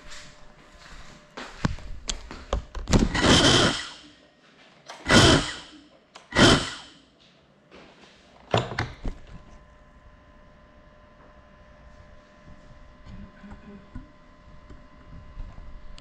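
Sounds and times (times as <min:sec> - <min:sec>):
drone motors spinning up: 0:02.9 - 0:04.2, 0:04.9 - 0:07.0.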